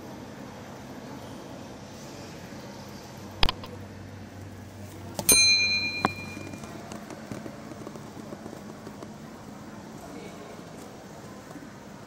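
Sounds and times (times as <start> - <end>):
bright bell ding: 5.3 - 6.7.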